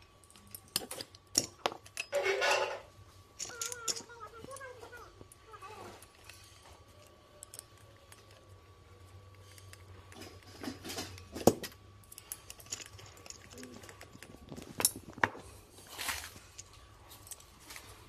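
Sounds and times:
metal and plastic clinks: 0.2s - 8.6s, 9.4s - 15.2s.

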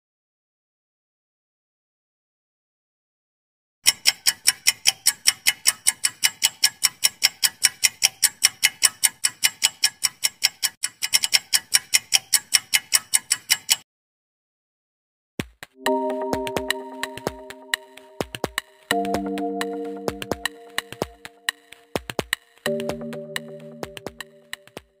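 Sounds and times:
clock ticking rapidly: 3.8s - 13.8s, 15.4s - 25.0s.

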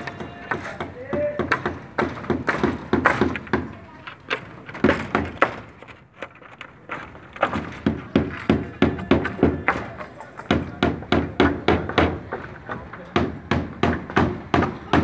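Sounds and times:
hammer striking formwork: 0.0s - 5.7s.

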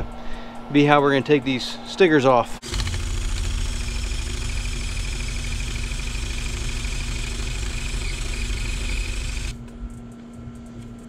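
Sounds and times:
power tool eraser wheel spinning: 2.6s - 9.6s.

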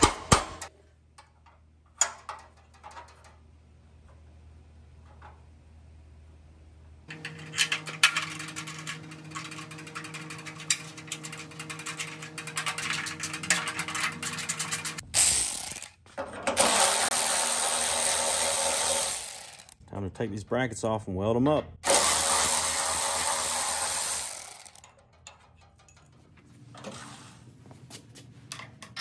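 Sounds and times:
electric ratchet running: 7.1s - 15.9s, 16.6s - 19.8s, 21.8s - 24.9s
metal brackets clicking: 7.1s - 17.4s, 21.8s - 26.9s.

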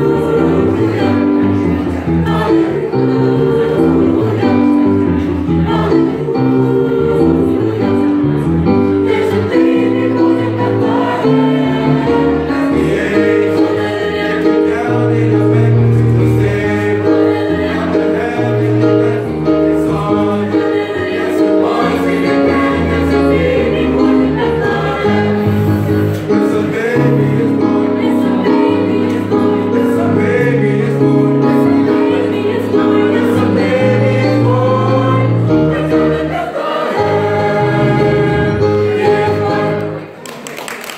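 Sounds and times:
choir singing in harmony: 0.0s - 40.3s.

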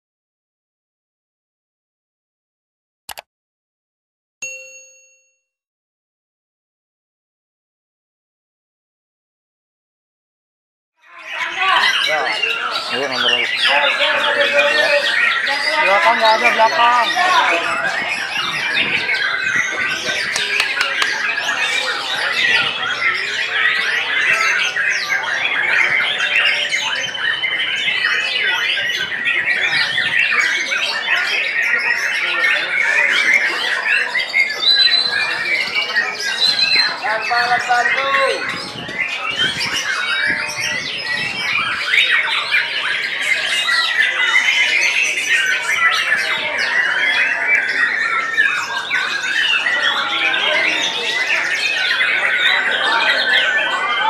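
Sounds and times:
songbirds singing: 11.0s - 54.0s.

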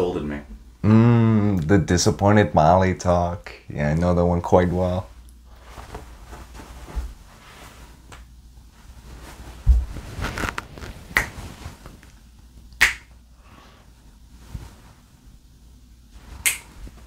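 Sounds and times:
soft thumps: 9.6s - 10.2s.

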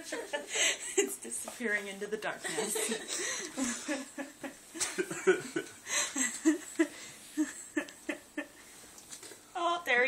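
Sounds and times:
people laughing: 2.4s - 8.6s.

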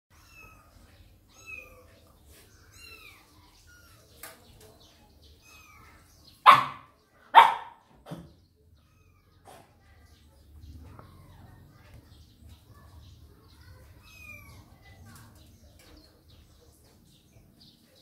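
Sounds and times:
puppy barking: 6.4s - 8.3s.

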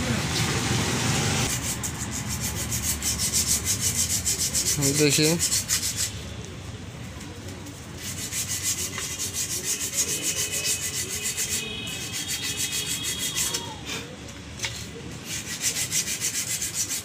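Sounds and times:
sandpaper scraping: 1.4s - 6.2s, 7.8s - 13.8s, 14.6s - 17.0s.

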